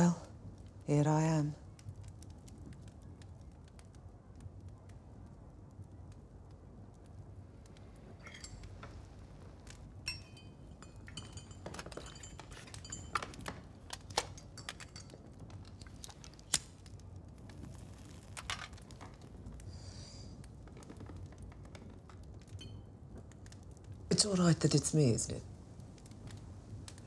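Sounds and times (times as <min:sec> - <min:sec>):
cups and crockery clinking: 0:08.2 - 0:09.0, 0:10.1 - 0:15.3
teaspoon clinking in teacup: 0:10.1 - 0:13.5.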